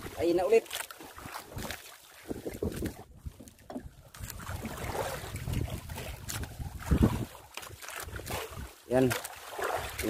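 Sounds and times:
water slapping boat hull: 0.0 - 10.0
wind buffeting microphone: 1.5 - 7.5.

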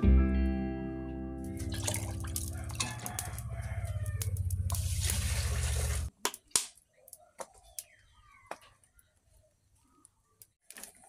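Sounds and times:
cooking pot knocks and clinks: 1.7 - 3.4.

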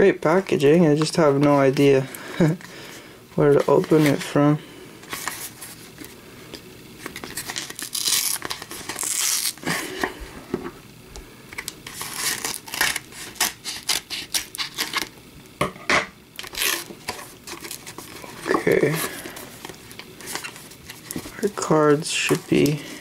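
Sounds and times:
cardboard and tape tearing: 7.0 - 9.8, 11.6 - 15.1, 16.4 - 22.9.

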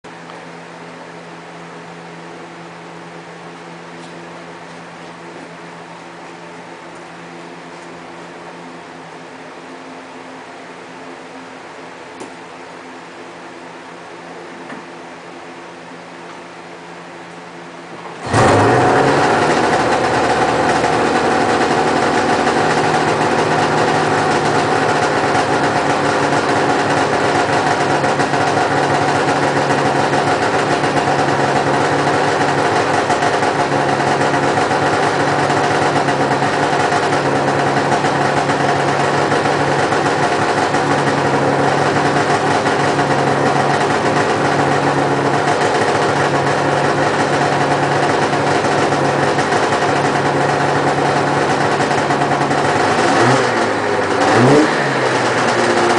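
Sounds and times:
snowmobile engine idling: 18.2 - 55.9.

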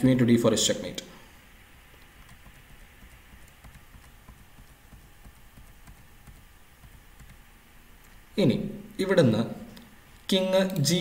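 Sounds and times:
low steady hum: 0.0 - 11.0
computer keyboard or mouse clicking: 1.9 - 7.4.

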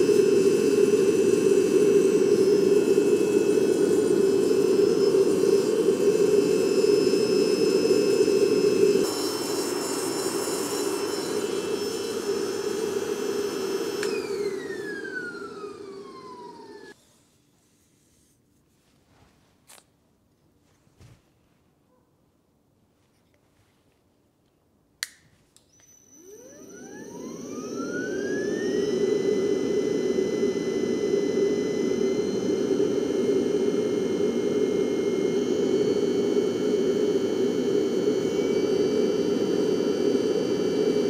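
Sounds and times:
roaster blower whining: 0.0 - 17.0, 25.7 - 41.0.

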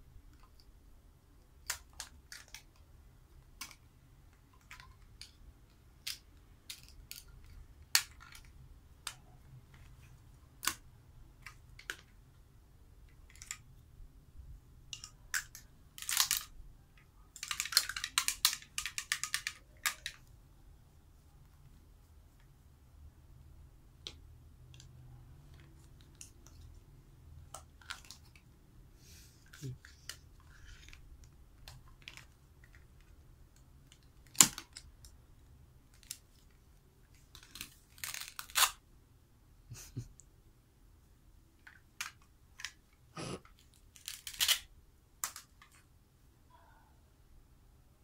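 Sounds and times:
plastic toys clicking and knocking: 1.6 - 10.0, 10.6 - 12.2, 13.0 - 13.8, 14.8 - 20.3, 27.5 - 28.5, 29.4 - 35.2, 41.6 - 45.9.

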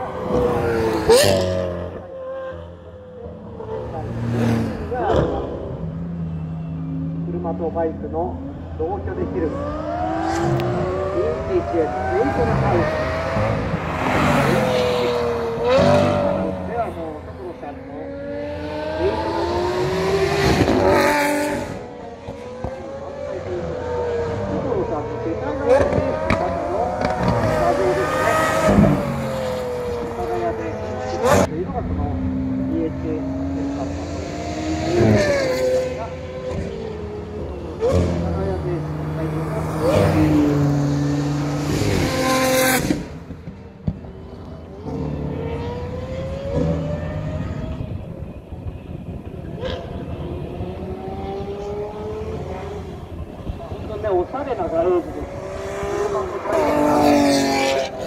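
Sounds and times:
car engine accelerating at full throttle: 0.0 - 58.0
faint car engine revving: 0.0 - 58.0
car engine accelerating past: 9.5 - 16.7, 55.0 - 58.0.

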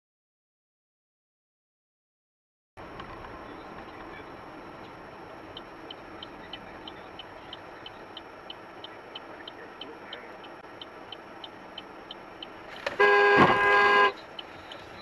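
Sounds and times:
car interior road noise: 2.8 - 15.0
light ticking: 4.8 - 13.0, 14.1 - 15.0
car horn: 12.8 - 14.4.

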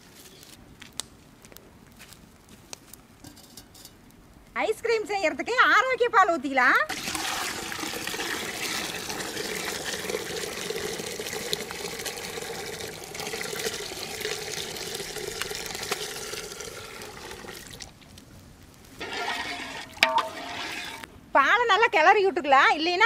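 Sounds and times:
milk pouring into metal pot: 6.9 - 17.9, 19.0 - 21.1.

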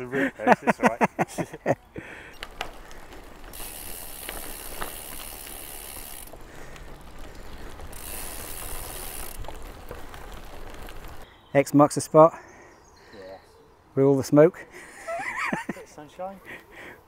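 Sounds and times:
bicycle freewheel ticking: 3.3 - 11.2.

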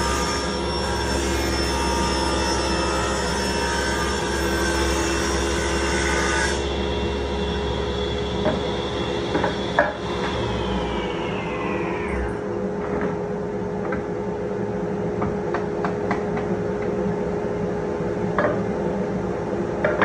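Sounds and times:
table saw cutting wood: 0.0 - 12.5
saw motor whine: 0.0 - 12.6.

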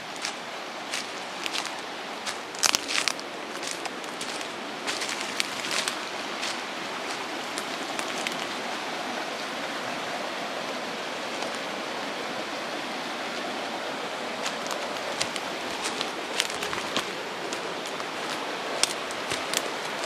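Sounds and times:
footsteps on dry leaves: 0.0 - 8.5, 14.2 - 20.0
river flowing: 0.0 - 20.0.

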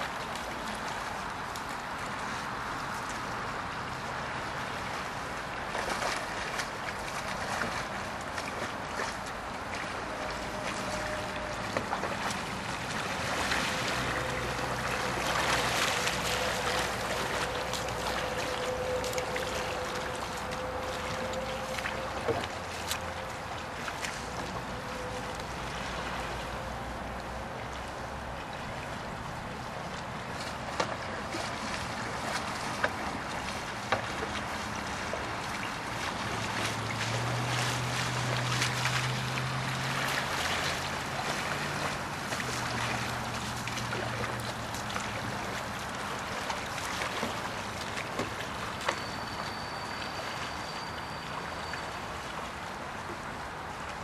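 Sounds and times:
paddle strokes and splashing: 0.0 - 54.0
rushing river water: 0.0 - 54.0.

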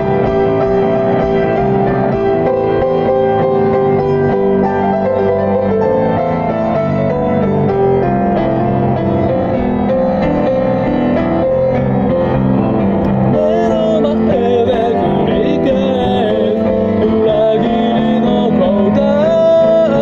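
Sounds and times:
instrumental accompaniment: 0.0 - 20.0
person singing: 13.0 - 20.0.

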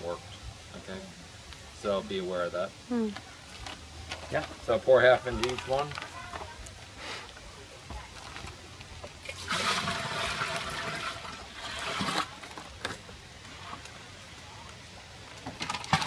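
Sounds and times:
liquid pouring into plastic drum: 8.2 - 13.0.

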